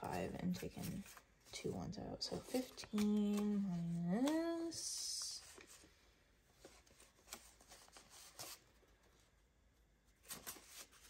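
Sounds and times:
paper bills crinkling: 0:02.4 - 0:05.3.

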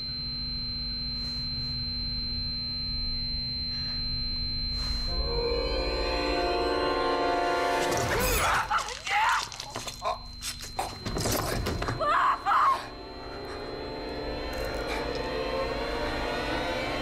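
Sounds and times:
music score: 0:05.1 - 0:08.3, 0:13.0 - 0:17.0
steady musical drone: 0:05.1 - 0:08.4, 0:12.4 - 0:17.0
people shouting and screaming: 0:08.1 - 0:09.8, 0:12.0 - 0:12.9.

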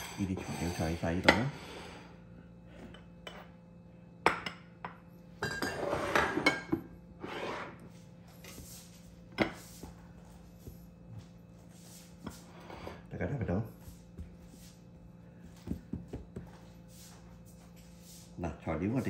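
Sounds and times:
dishes clinking and knocking: 0:00.0 - 0:01.7, 0:04.2 - 0:06.9, 0:09.3 - 0:09.7.

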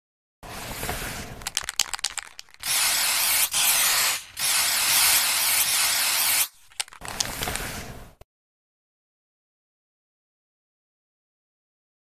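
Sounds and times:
spray paint can hissing: 0:01.1 - 0:07.7
sharp clicks: 0:01.5 - 0:02.7.

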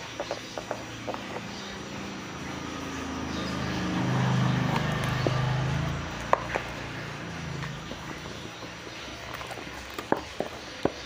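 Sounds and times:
motor vehicle passing: 0:00.0 - 0:11.0.

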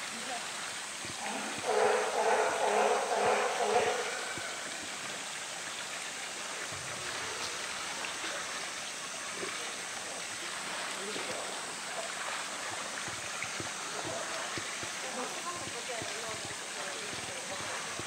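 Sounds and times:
running water rush: 0:00.0 - 0:18.0
water splashing and sloshing: 0:00.0 - 0:18.0.

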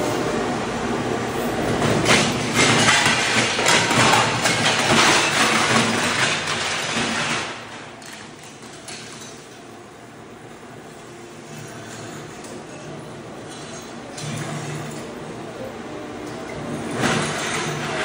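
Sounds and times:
machine scraping up tile: 0:02.0 - 0:09.2, 0:16.8 - 0:18.0.

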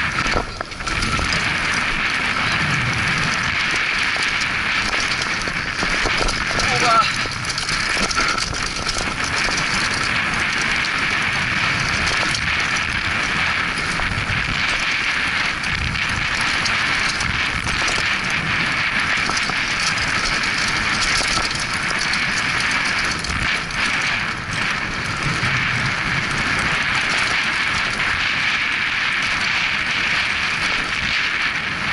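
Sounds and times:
bike rattles and knocks: 0:00.0 - 0:31.9
bike tyres rolling over dirt: 0:00.0 - 0:31.9
wind noise on camera: 0:00.0 - 0:31.9.

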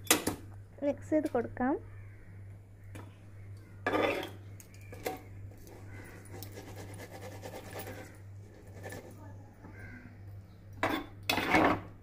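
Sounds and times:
ladle scraping a pan: 0:03.9 - 0:04.4.

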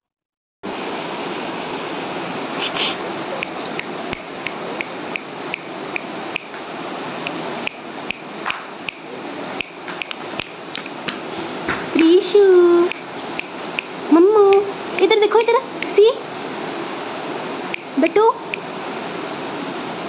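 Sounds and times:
steady rushing hiss: 0:00.7 - 0:20.0
light regular ticking: 0:03.4 - 0:06.6, 0:07.2 - 0:11.0, 0:12.8 - 0:16.1.

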